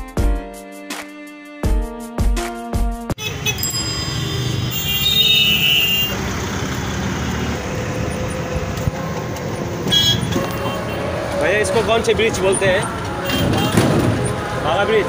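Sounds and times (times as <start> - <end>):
short high-pitched traffic tone: 3.2 - 6.2
auto-rickshaw engine and road rumble: 3.2 - 15.0.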